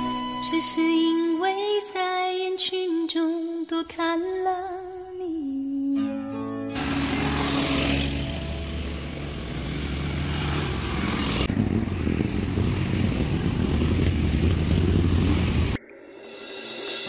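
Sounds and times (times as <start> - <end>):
quad bike engines running: 6.7 - 15.8.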